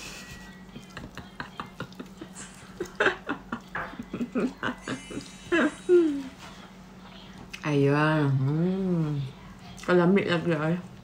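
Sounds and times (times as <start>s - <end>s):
woman chuckling softly: 0.0s - 6.3s
woman murmuring: 0.6s - 6.5s.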